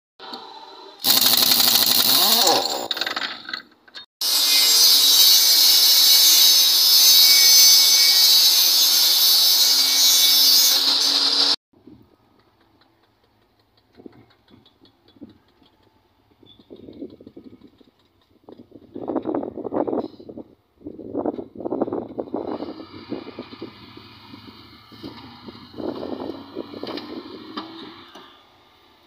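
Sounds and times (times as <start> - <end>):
air impact wrench: 1.0 - 3.2
table saw cutting wood: 4.2 - 11.6.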